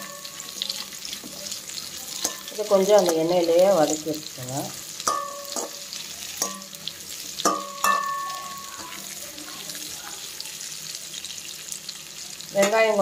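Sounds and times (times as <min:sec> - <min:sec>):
onions sizzling in oil: 0:00.0 - 0:13.0.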